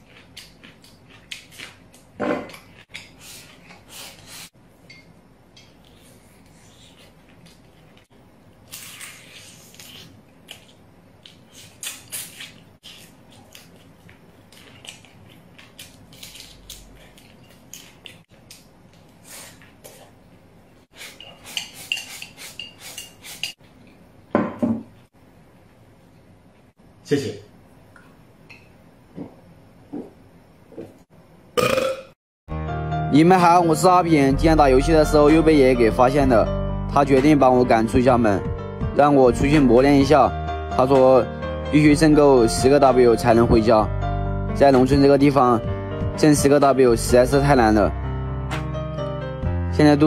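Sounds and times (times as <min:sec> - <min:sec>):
chewing: 0:00.0 - 0:03.8, 0:08.7 - 0:20.1.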